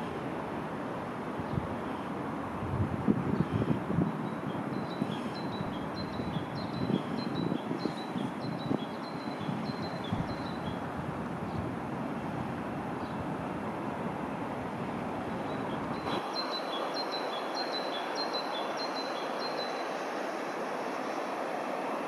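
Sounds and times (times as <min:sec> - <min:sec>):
wind rumbling on microphone: 0:00.0 - 0:16.4
road traffic hiss: 0:00.0 - 0:22.0
songbird chirping: 0:15.4 - 0:20.5.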